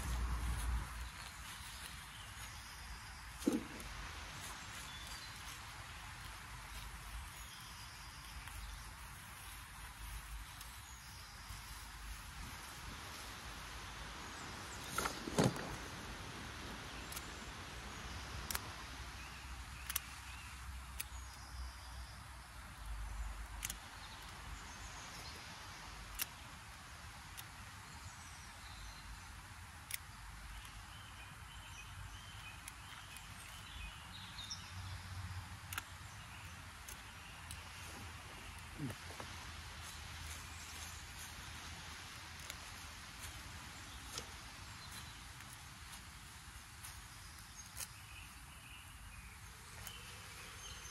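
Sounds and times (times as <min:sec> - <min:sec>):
sharp clicks: 0:16.6 - 0:27.8, 0:29.2 - 0:48.1.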